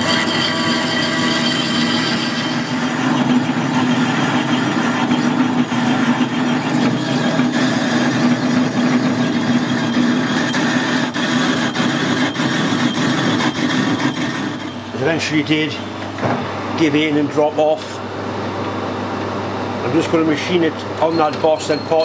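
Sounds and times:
metal lathe motor hum: 0.0s - 16.8s.

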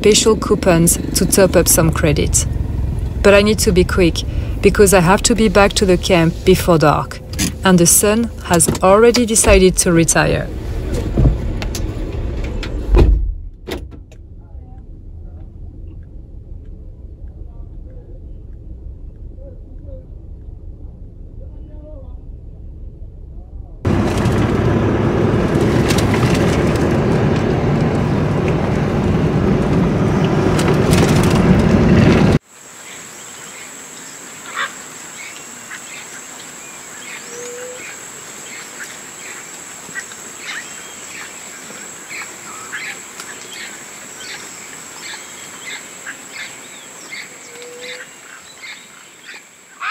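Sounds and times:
moving vehicle rushing noise: 0.0s - 32.4s
low rising calls: 14.1s - 25.7s
high insect drone: 32.4s - 49.9s
bird calls: 32.8s - 49.9s.

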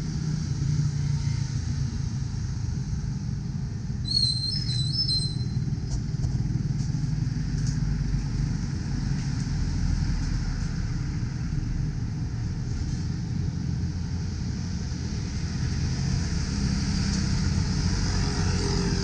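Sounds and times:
roadside background rumble: 0.0s - 19.0s
high whistling chirp: 4.0s - 5.6s.

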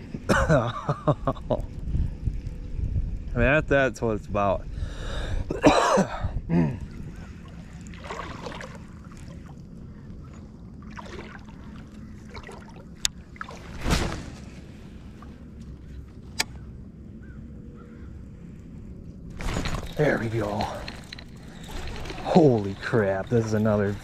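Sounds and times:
wind: 0.0s - 24.0s
river water: 6.8s - 15.8s, 19.3s - 24.0s.

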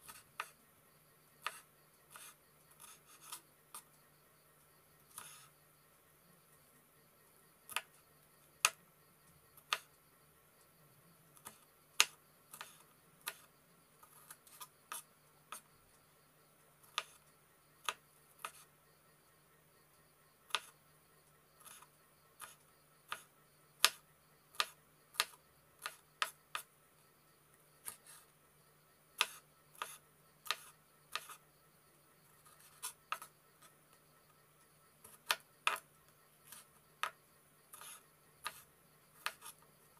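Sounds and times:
knife chopping on wooden board: 29.2s - 31.4s, 39.2s - 39.5s.

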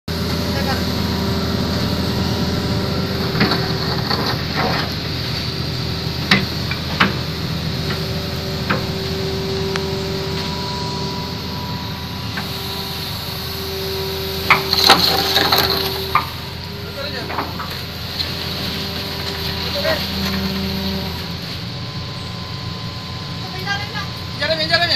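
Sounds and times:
excavator whining: 0.0s - 24.9s.

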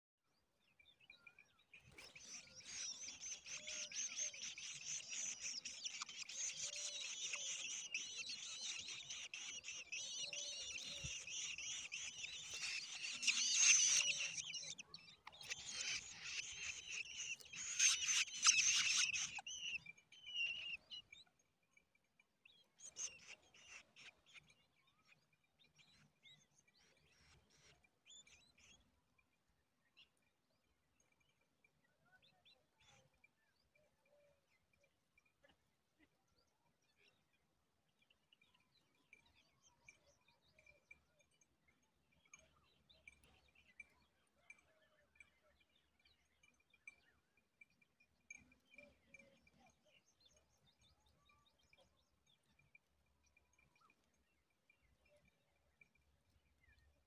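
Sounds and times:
nestlings begging calls: 2.0s - 19.8s.

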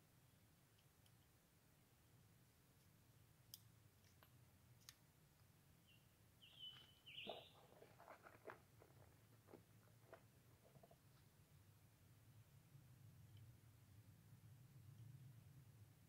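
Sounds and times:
short high bird chirp: 5.8s - 7.6s.

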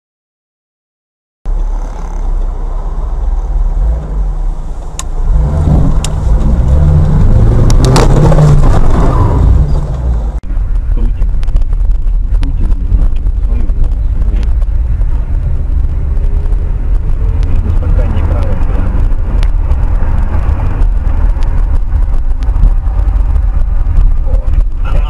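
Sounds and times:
car engine and road rumble: 1.5s - 25.0s.

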